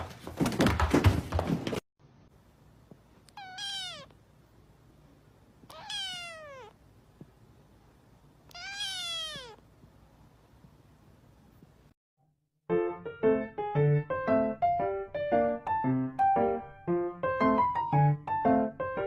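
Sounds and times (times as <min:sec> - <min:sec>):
kitten meowing: 0:03.3 - 0:04.2, 0:05.7 - 0:06.8, 0:08.5 - 0:09.6.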